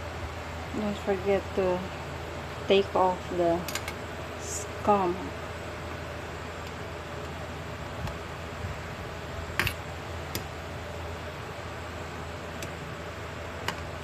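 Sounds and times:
steady background hiss: 0.0 - 14.0.

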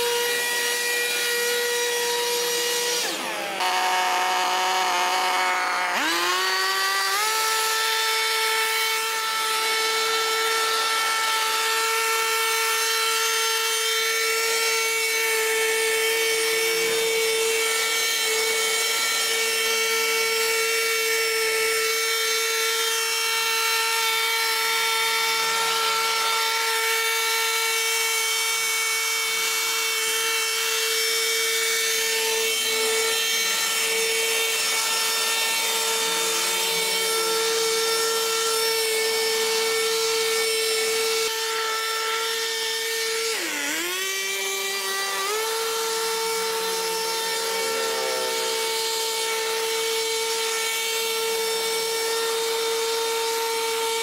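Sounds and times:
grass cutter engine revving: 0.0 - 21.8, 31.9 - 52.4.

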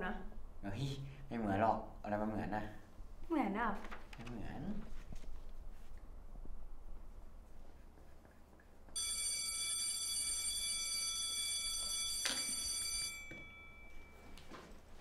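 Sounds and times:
school bell ringing: 9.0 - 14.4.

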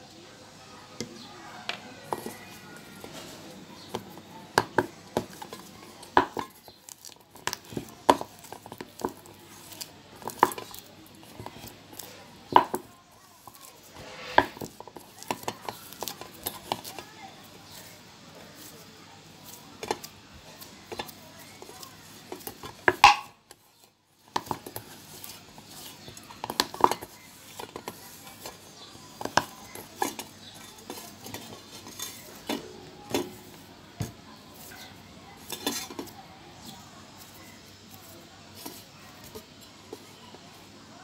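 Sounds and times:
dough knocking in steel bowl: 3.9 - 9.4, 12.5 - 13.6, 19.8 - 23.5.

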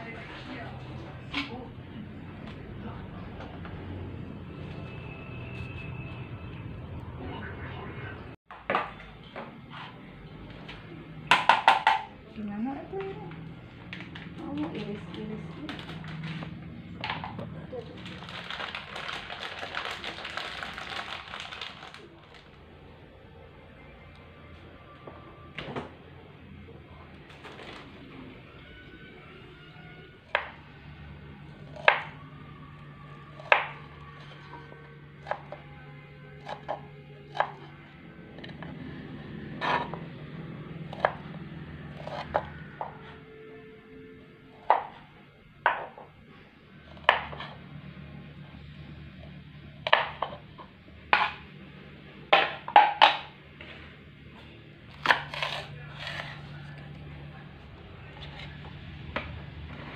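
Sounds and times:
background music: 14.8 - 46.2.

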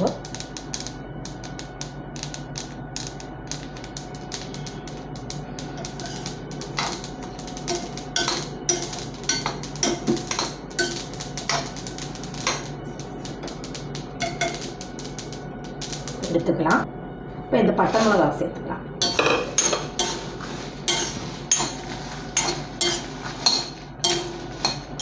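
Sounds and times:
seeds popping and crackling: 0.0 - 16.4.

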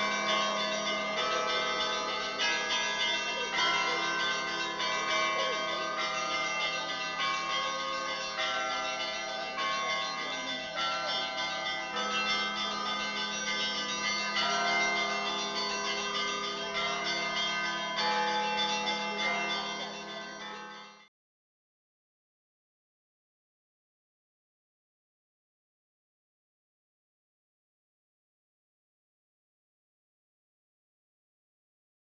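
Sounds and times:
church bells ringing: 0.0 - 21.1.

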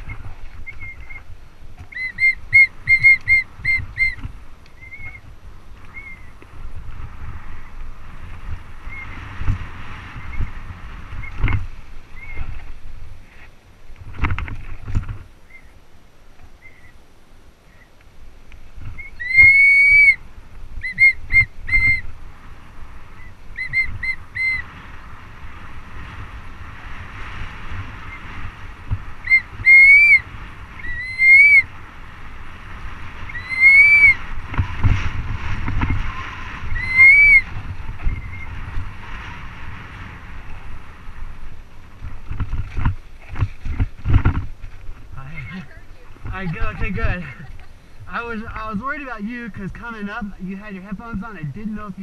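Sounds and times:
tyre and wind hiss: 0.0 - 52.0
high whistle-like tones: 36.8 - 37.4.

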